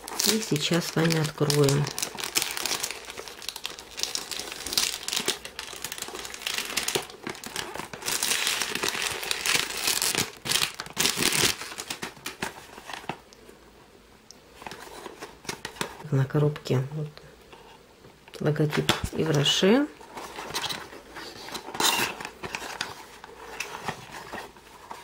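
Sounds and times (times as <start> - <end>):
cellophane crinkling: 0.0 - 13.4, 14.6 - 16.7, 18.7 - 25.0.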